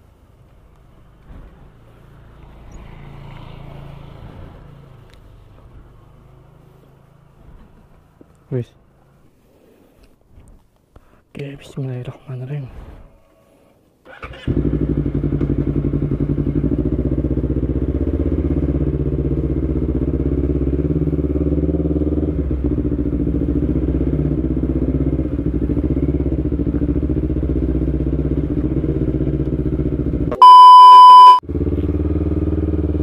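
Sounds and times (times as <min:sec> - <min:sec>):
motorcycle engine running: 0:14.5 - 0:30.4, 0:31.0 - 0:33.0
loud steady beep: 0:30.3 - 0:31.4.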